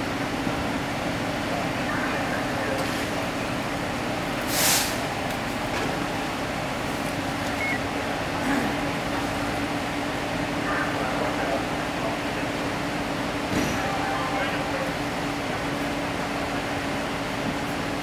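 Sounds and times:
large vehicle engine idling: 0:00.0 - 0:18.0
air brake hiss: 0:04.5 - 0:05.0.

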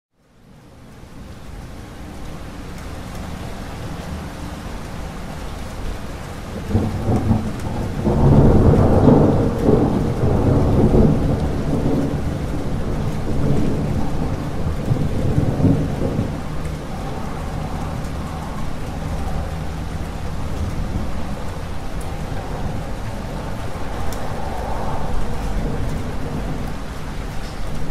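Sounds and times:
rain falling: 0:00.1 - 0:27.9
thunder rolling: 0:05.9 - 0:27.9.

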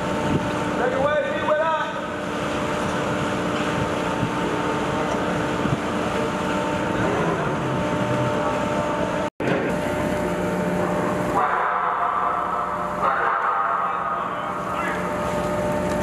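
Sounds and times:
machinery hum: 0:00.0 - 0:16.0.

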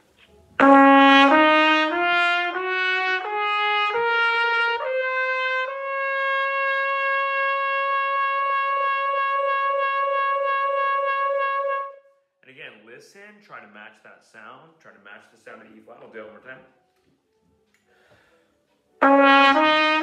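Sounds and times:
trumpet playing a scale: 0:00.1 - 0:12.2, 0:19.0 - 0:20.0.

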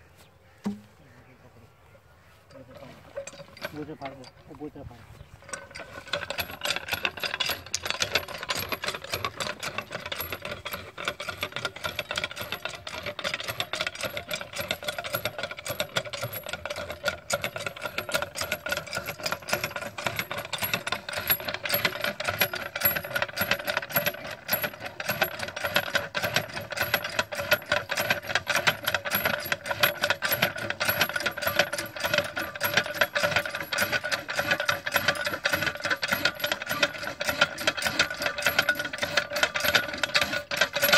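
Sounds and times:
hand pump clicking and rattling: 0:02.5 - 0:40.9.

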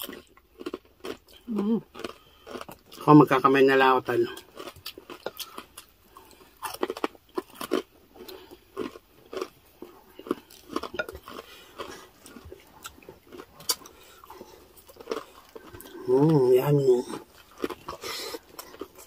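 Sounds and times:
chewing crispy pork: 0:00.0 - 0:19.0.

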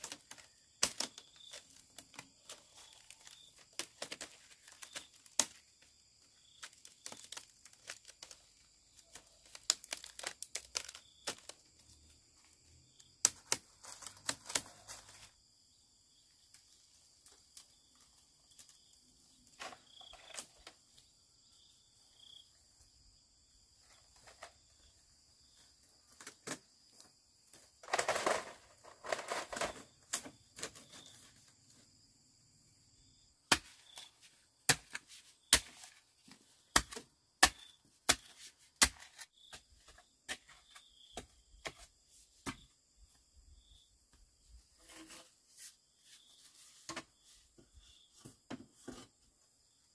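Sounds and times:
scraping and rustling: 0:27.7 - 0:31.8.

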